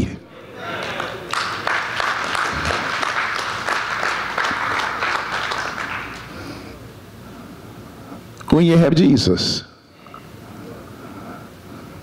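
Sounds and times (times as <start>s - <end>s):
congregation applauding: 0.6s - 6.4s.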